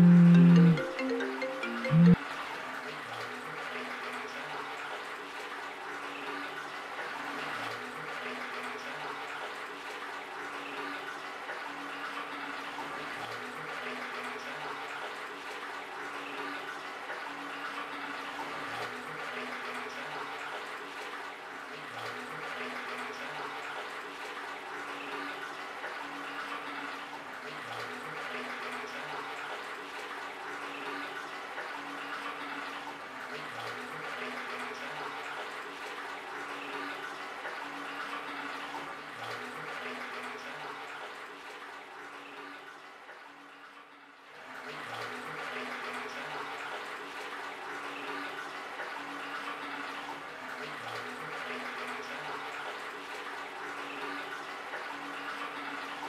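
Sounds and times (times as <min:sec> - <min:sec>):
low repeating tone: 0:00.0 - 0:02.2.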